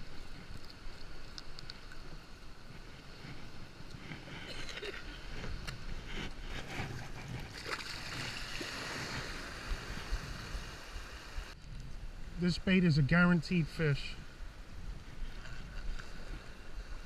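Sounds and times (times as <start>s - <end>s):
small waves breaking on shore: 0.0s - 11.6s, 13.8s - 17.0s
splashing in shallow water: 0.0s - 11.6s.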